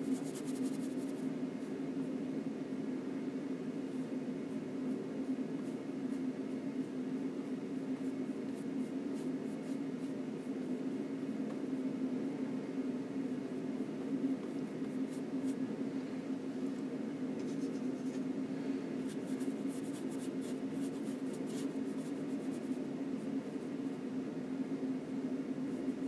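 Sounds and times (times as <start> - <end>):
paint brush scratching on canvas: 0.0 - 1.2, 17.4 - 18.3, 19.0 - 22.8
steady low hum: 0.0 - 26.0.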